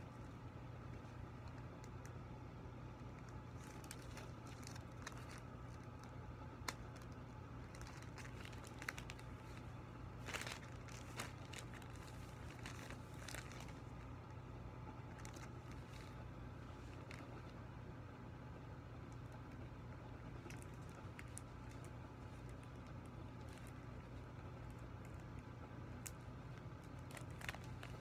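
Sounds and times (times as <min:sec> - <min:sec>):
faint low hum: 0:00.0 - 0:28.0
foil balloon crinkling: 0:02.9 - 0:17.8, 0:19.1 - 0:28.0
sharp crackles: 0:03.2 - 0:17.6, 0:20.3 - 0:28.0.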